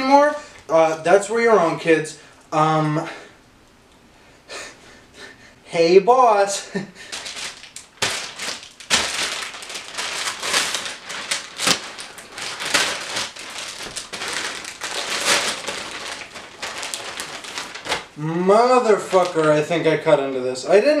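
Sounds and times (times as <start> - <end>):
plastic bag crinkling: 7.0 - 19.9.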